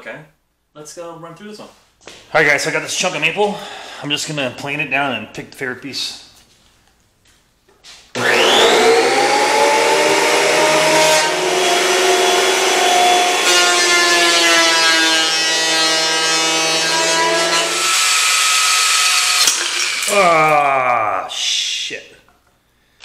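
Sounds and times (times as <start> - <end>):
thickness planer motor whining: 8.2 - 20.2.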